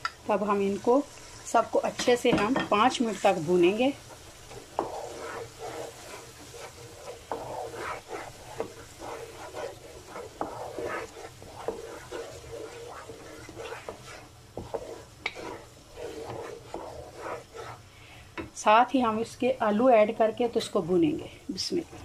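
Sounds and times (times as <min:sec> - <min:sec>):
low sizzle of frying: 0:00.0 - 0:22.0
wooden spatula scraping a pan: 0:00.3 - 0:22.0.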